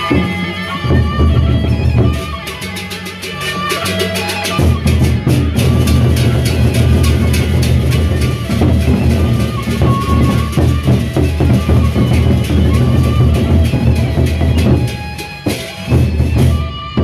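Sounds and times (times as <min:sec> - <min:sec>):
high held melody notes: 0:00.0 - 0:17.0
barrel drums beaten with sticks: 0:04.5 - 0:16.7.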